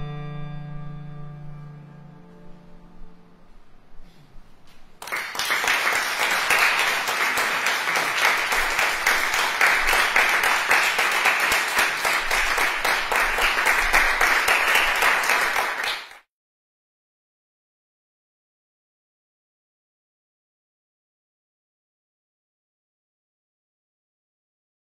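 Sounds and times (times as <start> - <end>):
audience applauding: 5.0 - 16.3.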